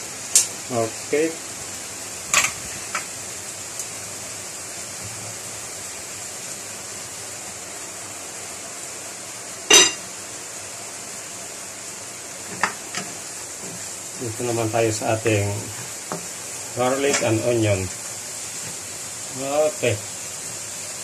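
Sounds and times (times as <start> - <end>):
garlic and onion sizzling in oil: 0.0 - 21.0
ringing clank of kitchenware: 9.7 - 10.0.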